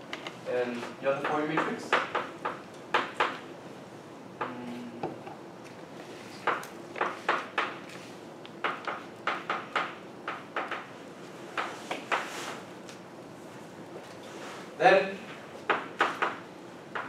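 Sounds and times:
chalk tapping on blackboard: 0:01.2 - 0:03.4, 0:06.4 - 0:07.8, 0:08.6 - 0:10.9, 0:11.5 - 0:12.6, 0:15.7 - 0:17.0.

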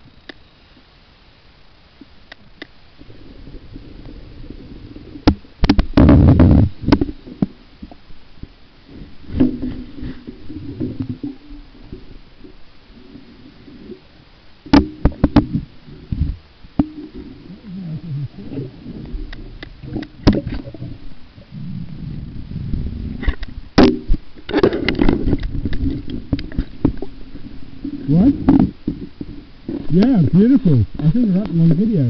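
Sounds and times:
camera handling knocks underwater: 0:05.2 - 0:07.2, 0:14.7 - 0:15.6
low rumble: 0:15.5 - 0:24.4.

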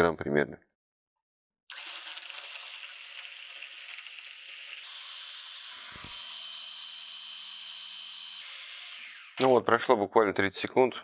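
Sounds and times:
hand blender whirring: 0:01.7 - 0:09.5.

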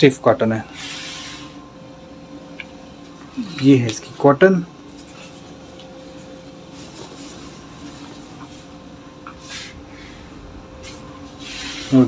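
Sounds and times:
faint constant tone: 0:00.0 - 0:12.0
low room hum: 0:00.0 - 0:12.0.

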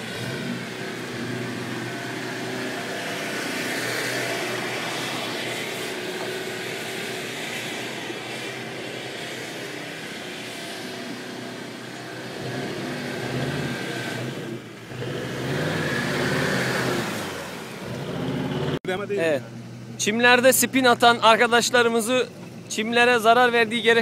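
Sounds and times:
engine revving hard: 0:00.0 - 0:18.8.

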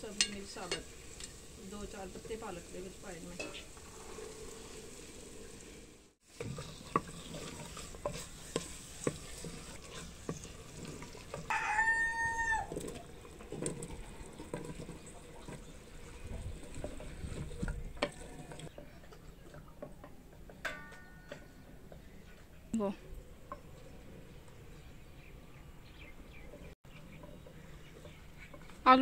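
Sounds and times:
wooden spoon stirring clay pot: 0:06.2 - 0:22.7, 0:26.5 - 0:29.0
rooster crowing: 0:11.5 - 0:12.8.

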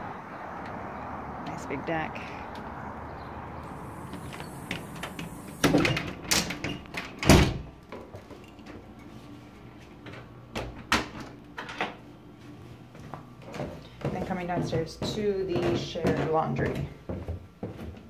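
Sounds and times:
door opening and closing: 0:03.6 - 0:07.8
door thumping shut: 0:03.9 - 0:07.7.

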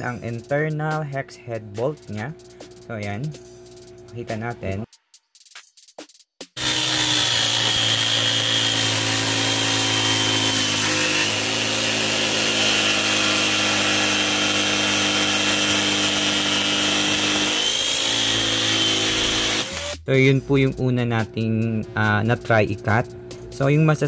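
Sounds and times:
circular saw cutting ceramic tile: 0:06.6 - 0:20.0.

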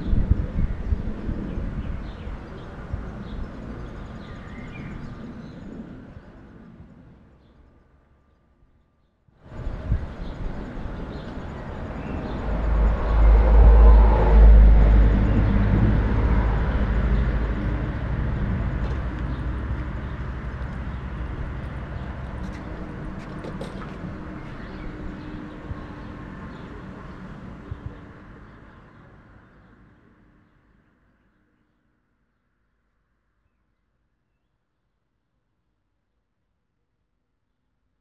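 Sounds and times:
train rumbling past: 0:09.5 - 0:29.9.

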